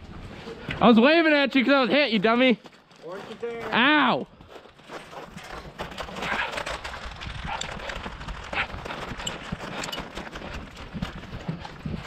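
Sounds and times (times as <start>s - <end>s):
footsteps on ground: 1.9s - 6.5s
gear rattling: 4.5s - 12.0s.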